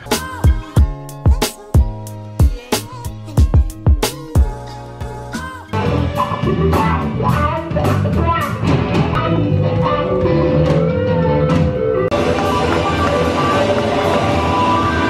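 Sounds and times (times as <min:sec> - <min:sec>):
live rock band playing: 0:05.7 - 0:15.0.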